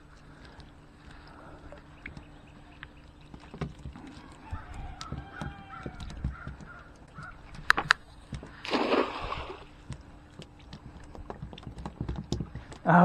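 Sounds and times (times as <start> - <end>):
crow cawing: 5.0 - 7.4.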